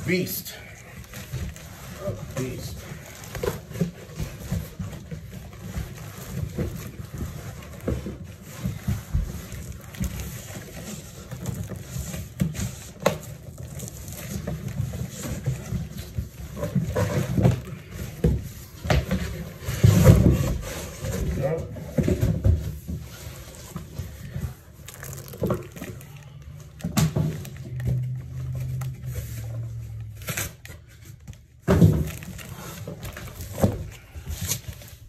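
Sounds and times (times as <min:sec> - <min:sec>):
cardboard boxes scraping and rustling: 0:01.1 - 0:31.1.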